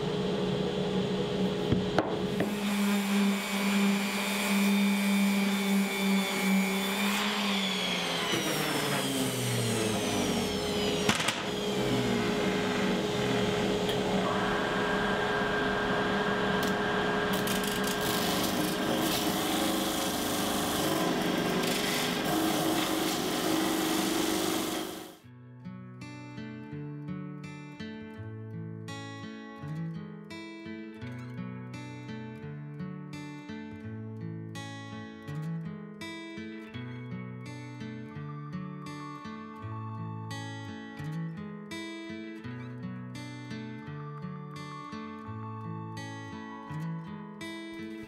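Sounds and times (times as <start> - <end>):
steady machine hum: 0.0 - 25.2
random orbit sander on wood: 1.6 - 25.2
acoustic guitar music: 10.2 - 24.6, 25.2 - 48.0.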